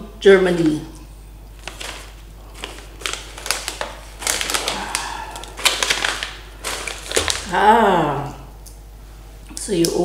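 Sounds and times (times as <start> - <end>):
plastic snack bag crinkling: 1.5 - 7.6.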